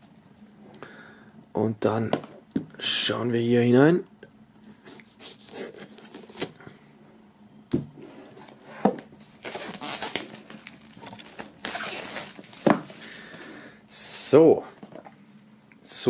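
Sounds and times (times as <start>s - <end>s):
plastic wrap crinkling: 9.2s - 13.5s.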